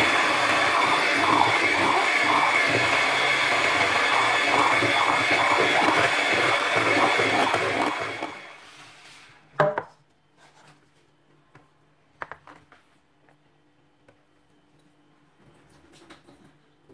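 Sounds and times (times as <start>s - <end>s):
electric hand mixer whining: 0.0s - 8.9s.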